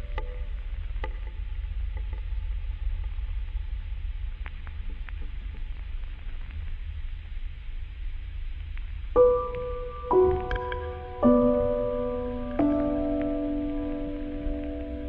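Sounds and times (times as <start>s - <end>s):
low steady rumble: 0.0s - 15.0s
faint ticks: 4.3s - 7.0s, 8.5s - 15.0s.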